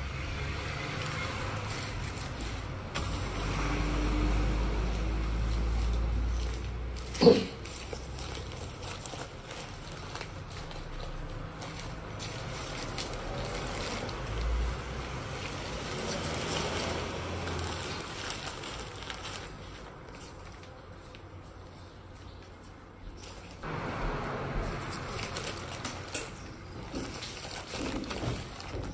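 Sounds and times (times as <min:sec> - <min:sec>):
nylon backpack rustling: 0:04.6 - 0:20.9.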